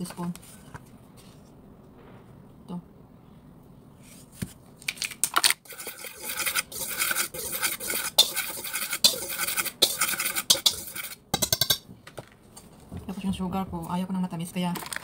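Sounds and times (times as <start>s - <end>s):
spoon scraping metal bowl: 5.6s - 11.8s.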